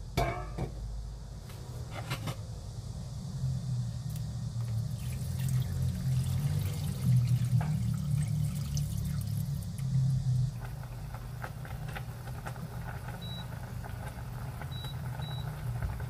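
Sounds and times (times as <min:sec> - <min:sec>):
water pouring into metal pot: 0:04.9 - 0:10.1.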